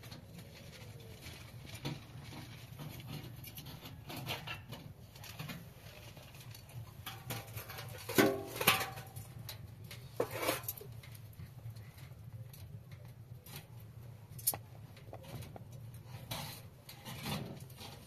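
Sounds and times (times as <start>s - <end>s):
shovel scraping ash: 10.0s - 10.9s.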